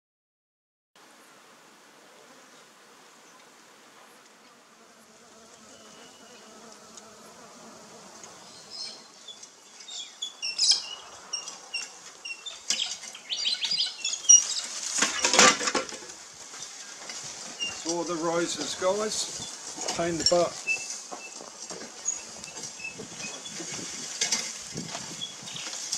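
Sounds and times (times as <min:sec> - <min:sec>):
bees buzzing faintly: 0:01.0 - 0:25.9
small birds chirping: 0:05.4 - 0:07.5, 0:08.1 - 0:15.4, 0:16.6 - 0:25.9
branches rustling and crackling: 0:05.5 - 0:25.9.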